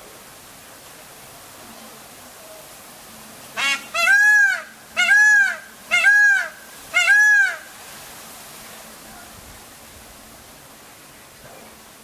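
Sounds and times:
rain hiss: 0.0s - 12.0s
parakeet calling: 3.6s - 7.7s.

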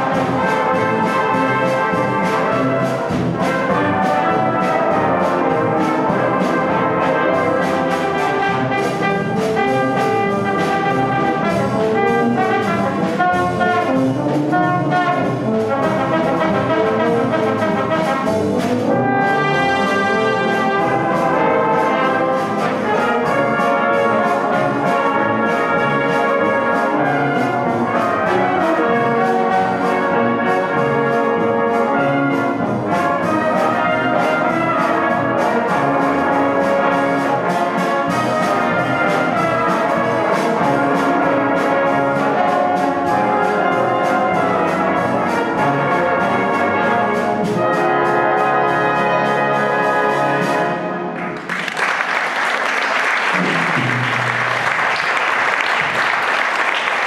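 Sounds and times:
brass band playing: 0.0s - 57.0s.

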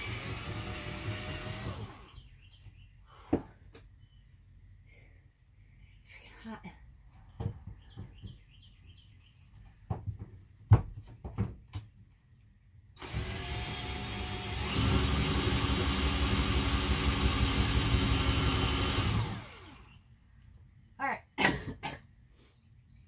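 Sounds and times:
cordless drill running: 0.0s - 2.2s, 13.0s - 20.0s.

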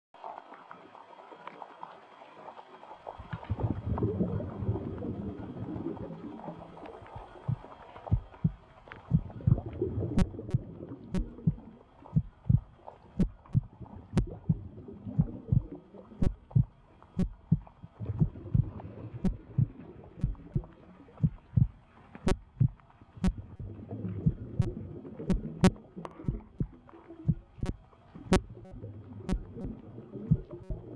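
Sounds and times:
muffled underwater river current: 0.2s - 30.9s
faint sharp ticks: 6.8s - 14.6s, 16.2s - 18.3s, 24.6s - 30.9s
dull low thumps: 7.2s - 30.9s.

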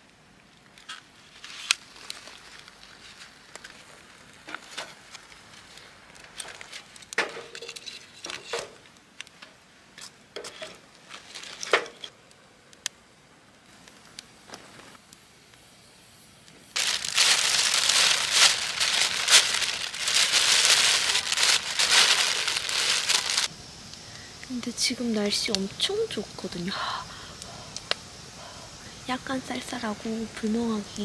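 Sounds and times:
bag being crumpled: 0.8s - 7.0s, 11.1s - 11.8s, 16.8s - 23.5s
firewood knocking and clattering: 7.0s - 8.8s.

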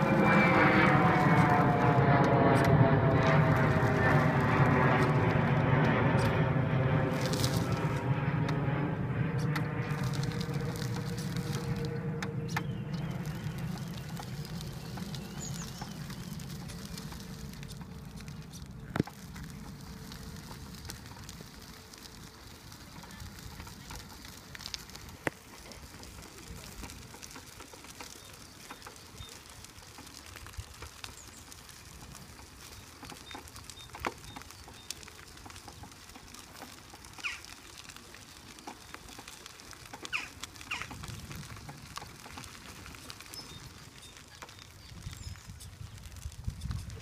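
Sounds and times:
tyres crackling on gravel: 0.0s - 47.0s
wheelchair motor rumble: 0.0s - 47.0s
bird chirps: 14.6s - 16.5s.

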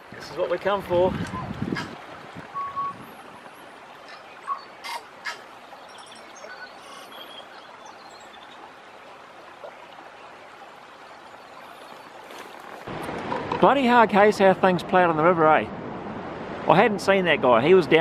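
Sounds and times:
river flowing over stones: 0.0s - 15.3s
small birds chirping: 4.0s - 8.8s.

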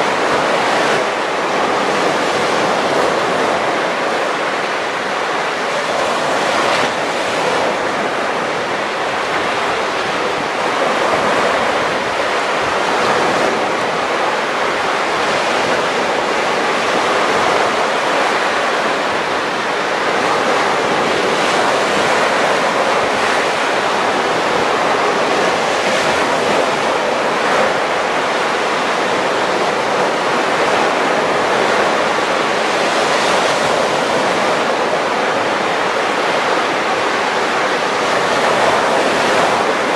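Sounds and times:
waves breaking on beach: 0.0s - 39.9s.

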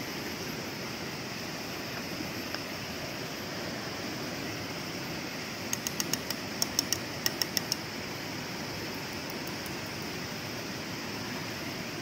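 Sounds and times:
sharp high ticks: 5.7s - 7.9s, 9.1s - 10.1s.

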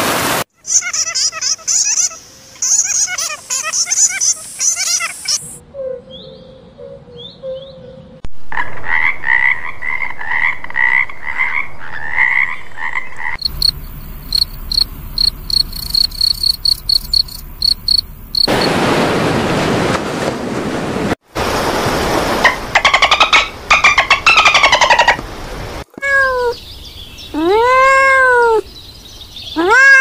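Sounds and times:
cricket chirping trill: 0.7s - 5.6s, 13.4s - 18.8s
frogs croaking in chorus: 13.2s - 18.7s
ocean waves washing: 14.8s - 26.4s.

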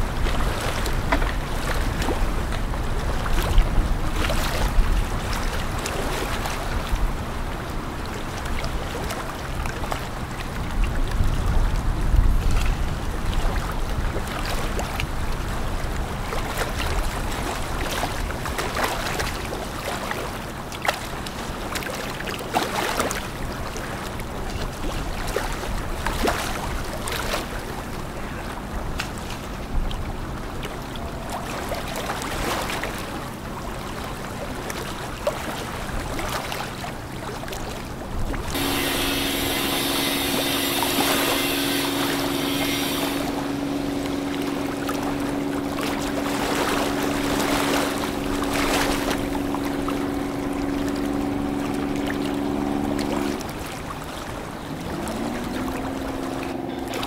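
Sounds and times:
sharp water splashes: 31.3s - 57.0s
low steady hum: 37.9s - 57.0s
ship bow wave rushing: 38.4s - 57.0s.

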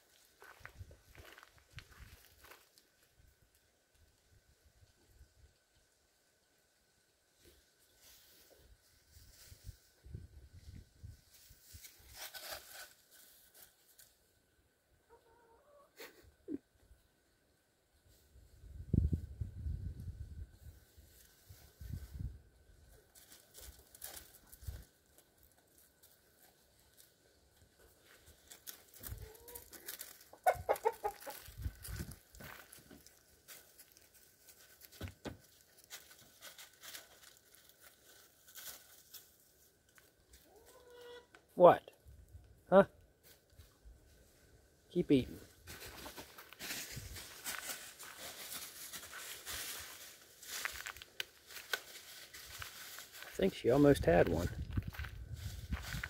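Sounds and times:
dog rustling through dry leaves: 11.8s - 13.7s, 45.7s - 53.4s.

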